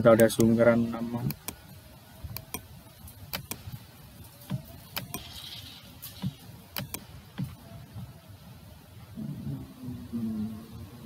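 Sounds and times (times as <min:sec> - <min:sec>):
computer mouse clicking: 0:01.3 - 0:01.6, 0:02.3 - 0:02.7, 0:03.3 - 0:03.7, 0:04.5 - 0:05.5, 0:06.7 - 0:07.1.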